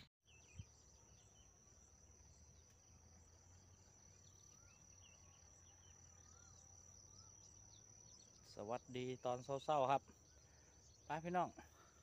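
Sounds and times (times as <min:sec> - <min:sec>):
bird chirps: 0:00.0 - 0:12.0
insect high-pitched trill: 0:00.3 - 0:12.0.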